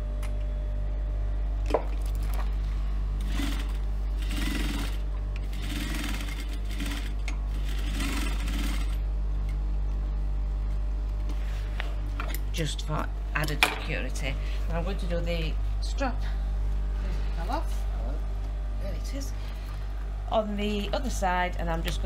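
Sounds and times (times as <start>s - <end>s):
low hum: 0.0s - 5.6s.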